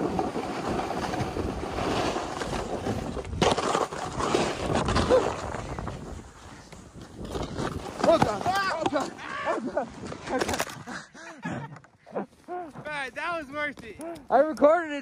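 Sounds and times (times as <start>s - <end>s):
snowboard scraping over snow: 0.0s - 8.9s.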